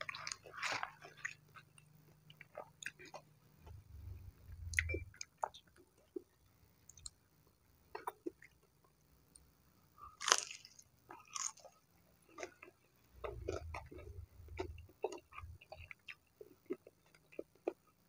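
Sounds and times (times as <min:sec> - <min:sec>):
person chewing crunchy food: 0:00.0 - 0:06.3, 0:10.1 - 0:18.0
wet mouth clicks: 0:04.6 - 0:05.0.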